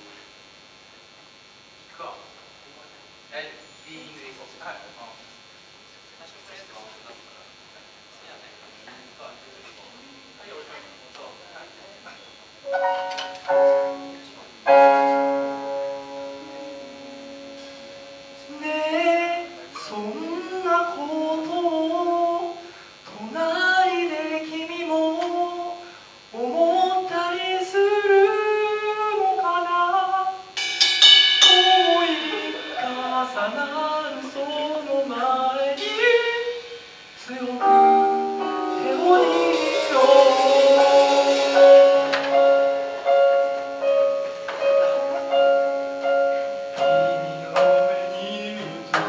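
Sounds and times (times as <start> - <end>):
live band playing: 12.7 - 14.1, 14.7 - 18.6, 30.6 - 34.6, 35.8 - 49.0
cymbal crash: 30.6 - 34.6, 35.8 - 37.2, 38.4 - 44.5
person singing: 31.4 - 46.2, 46.8 - 49.0.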